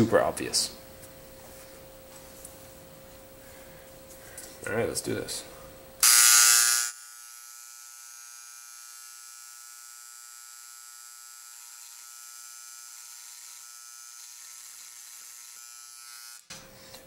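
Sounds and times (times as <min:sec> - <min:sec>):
electric engraver buzzing: 0:06.0 - 0:16.6.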